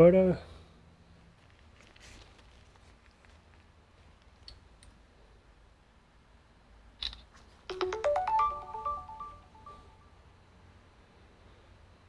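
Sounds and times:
electronic ringtone chime: 0:07.7 - 0:10.1.

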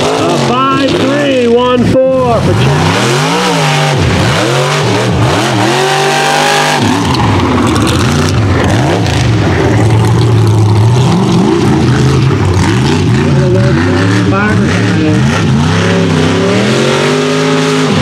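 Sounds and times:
steady noisy rush: 0:00.0 - 0:18.0
truck engine revving: 0:00.0 - 0:18.0.

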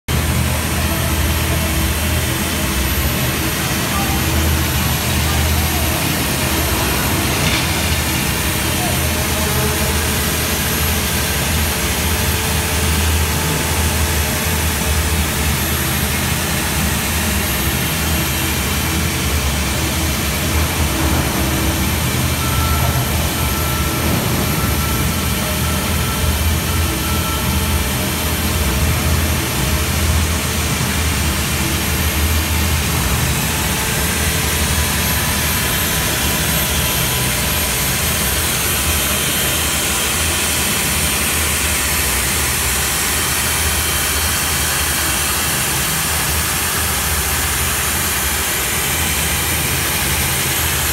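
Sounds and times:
core drill boring into concrete: 0:00.2 - 0:50.9.

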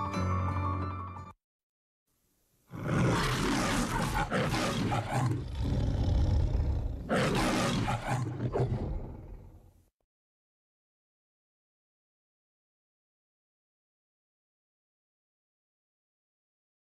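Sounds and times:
lion roaring: 0:02.7 - 0:09.7.

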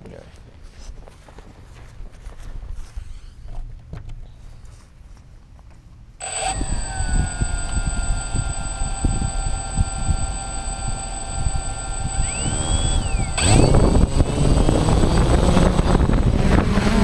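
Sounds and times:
drone propellers whirring: 0:06.2 - 0:17.0
faint high whines: 0:06.2 - 0:17.0
rising and falling tone: 0:06.2 - 0:17.0.

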